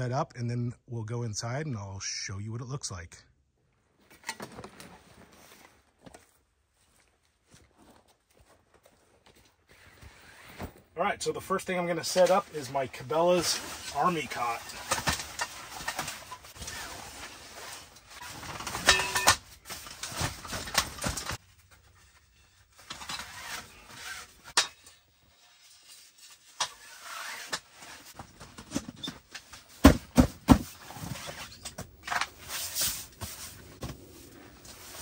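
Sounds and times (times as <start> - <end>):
canvas rustling: 4.0 - 10.9, 12.1 - 22.1.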